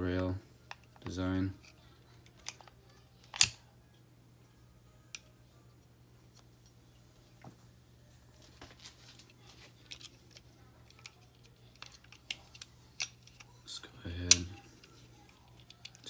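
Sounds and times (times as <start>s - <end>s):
pistol parts clicking and knocking: 0.7s - 3.6s, 9.9s - 13.5s.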